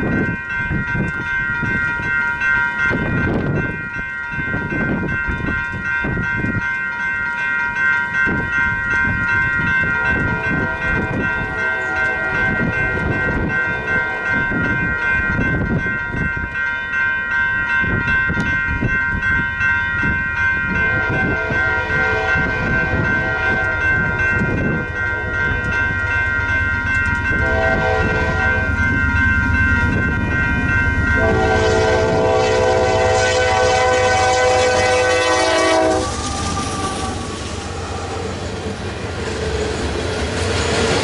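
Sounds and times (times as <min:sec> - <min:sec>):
railroad crossing bell ringing: 0:00.0 - 0:41.0
wind buffeting microphone: 0:00.0 - 0:41.0
faint train horn: 0:10.0 - 0:13.0, 0:20.8 - 0:24.0, 0:27.4 - 0:28.7, 0:31.2 - 0:38.5.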